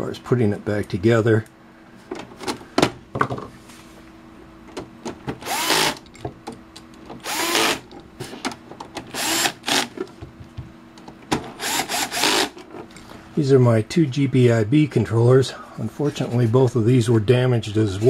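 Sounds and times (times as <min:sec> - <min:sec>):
power screwdriver whining: 0:05.4 - 0:06.0, 0:07.2 - 0:07.9, 0:09.1 - 0:09.9, 0:11.6 - 0:12.6.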